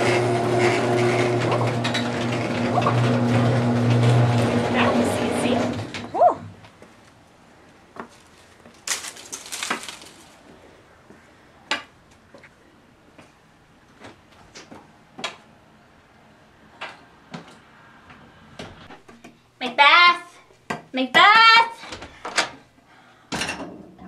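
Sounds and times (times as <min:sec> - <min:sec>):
knocks and clicks in a room: 0:11.7 - 0:15.5.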